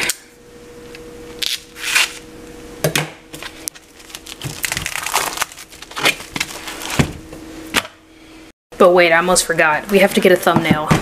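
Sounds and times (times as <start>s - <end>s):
packaging crinkling and clicking: 3.4s - 7.1s.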